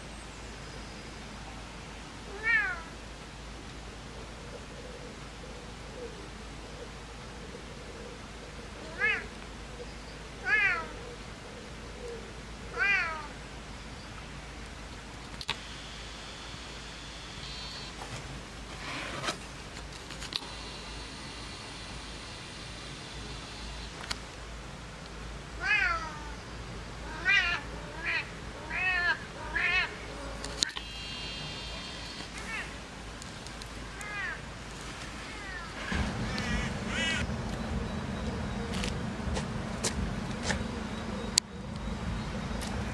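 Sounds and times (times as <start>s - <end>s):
cat meowing: 2.3s - 2.9s, 10.4s - 10.9s, 12.8s - 13.3s, 27.1s - 29.9s, 32.4s - 32.7s.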